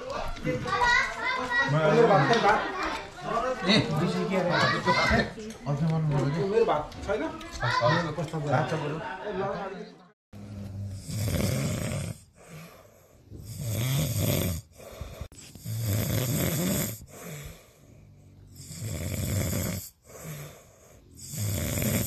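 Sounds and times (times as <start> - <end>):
person snoring: 10.4 - 22.0.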